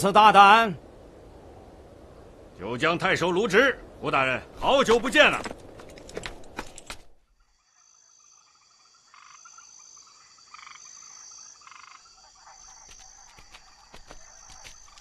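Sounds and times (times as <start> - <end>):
frogs croaking: 3.0 - 15.0
high insect chirring: 6.4 - 15.0.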